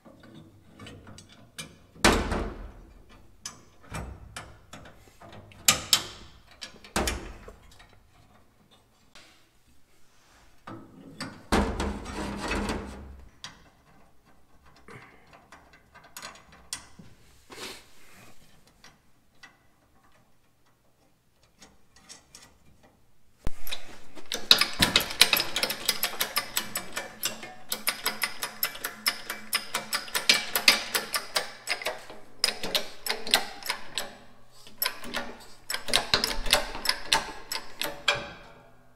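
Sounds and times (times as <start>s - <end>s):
metallic clicks and knocks: 0.0s - 8.9s, 10.7s - 17.1s, 23.6s - 38.6s
rapid clicking and ticking: 24.3s - 34.1s.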